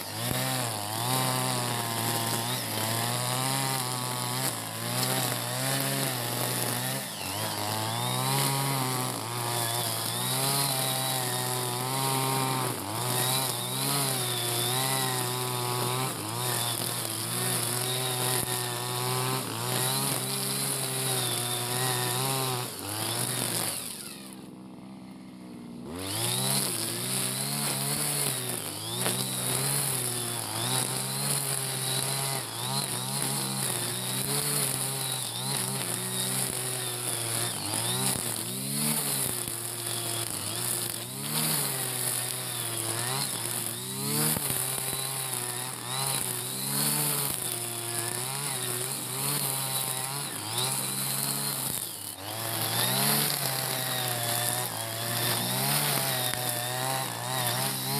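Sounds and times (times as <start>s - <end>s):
brush cutter engine revving: 0.0s - 57.9s.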